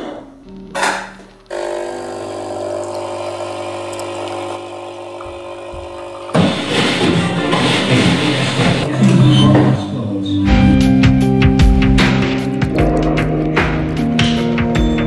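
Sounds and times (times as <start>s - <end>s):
guitar rock music: 6.4s - 9.0s, 9.8s - 15.0s.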